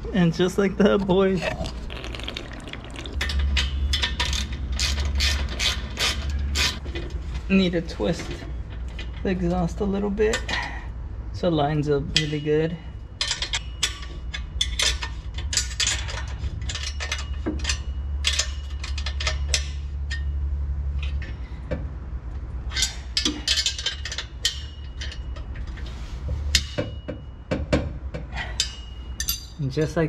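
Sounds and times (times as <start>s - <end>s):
low steady hum: 0.0s - 30.0s
wrenches clinking on metal bolts: 3.2s - 6.8s, 12.1s - 20.3s, 22.7s - 25.8s, 28.4s - 29.6s.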